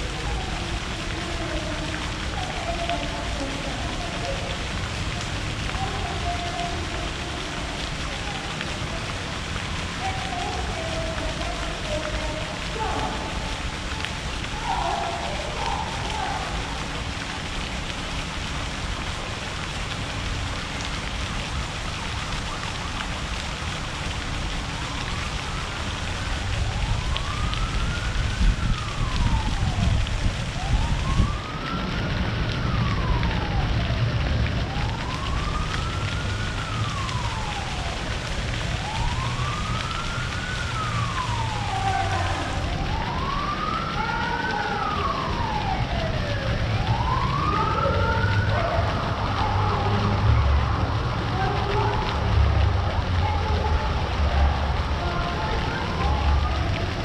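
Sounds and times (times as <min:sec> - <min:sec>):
emergency siren wailing: 0:00.0 - 0:57.0.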